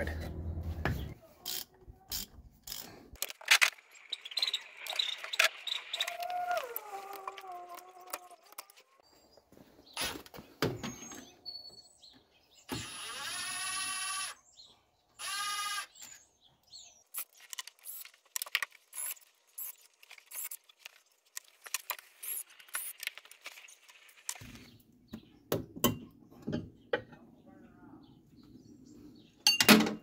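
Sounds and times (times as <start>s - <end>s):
cordless power driver whirring: 15.2s - 15.9s.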